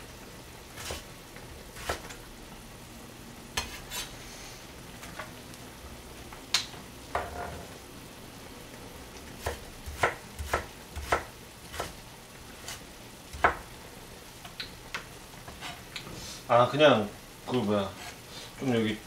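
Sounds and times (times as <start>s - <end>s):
knife chopping on plastic board: 9.4s - 11.9s.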